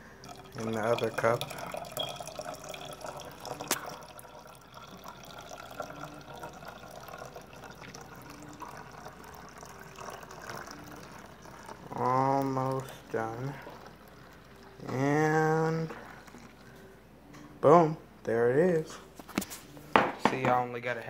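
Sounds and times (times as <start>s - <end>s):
liquid pouring into plastic bottle: 0.2s - 16.8s.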